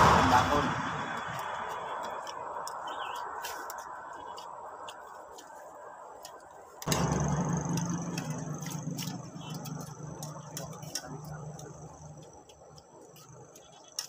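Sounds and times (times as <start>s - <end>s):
low steady engine hum: 0.0s - 3.2s, 6.8s - 14.0s.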